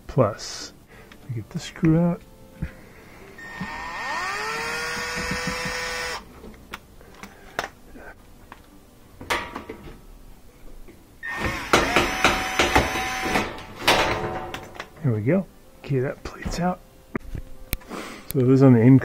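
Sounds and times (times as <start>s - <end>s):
cordless drill whining: 3.4s - 6.3s, 11.2s - 13.5s.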